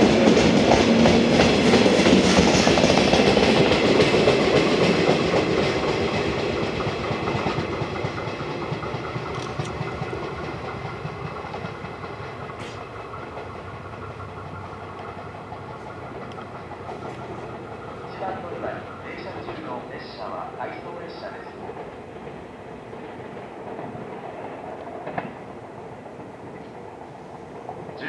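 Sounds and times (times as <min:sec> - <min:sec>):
train wheels clattering over rails: 0:00.0 - 0:28.0
faint clicks: 0:16.2 - 0:17.2.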